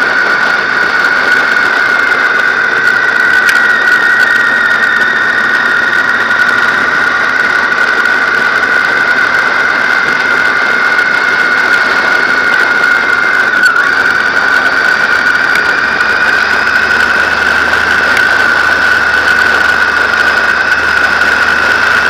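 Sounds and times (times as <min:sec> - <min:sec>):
motorcycle engine: 0:00.0 - 0:22.0
wind noise: 0:00.0 - 0:22.0
high-pitched whistle: 0:10.4 - 0:21.6.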